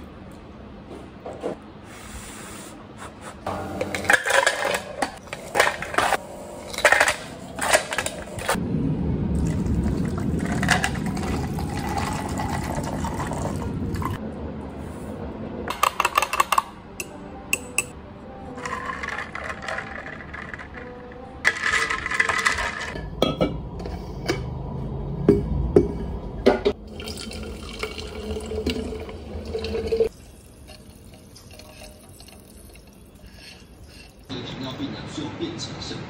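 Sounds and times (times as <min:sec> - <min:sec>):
ice cubes clinking into jar: 0:18.6 - 0:23.0.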